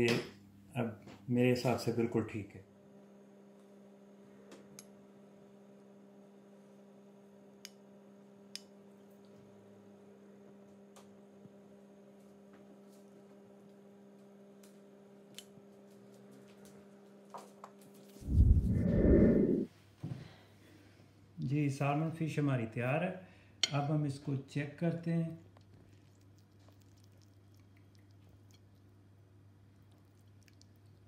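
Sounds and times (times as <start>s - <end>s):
low hum: 18.2s - 19.7s.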